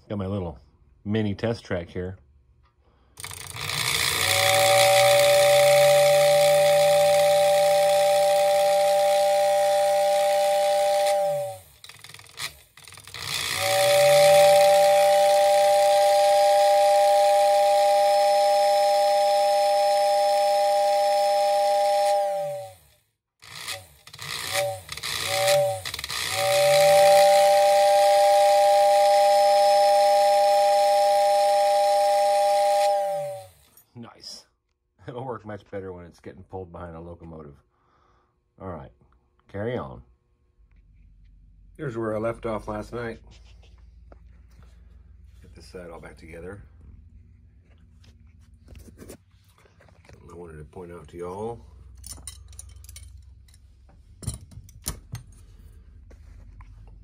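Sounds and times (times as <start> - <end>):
small motor humming: 3.2 - 33.8
two-note toy train whistle: 3.8 - 11.7, 13.2 - 23.0, 23.7 - 33.7.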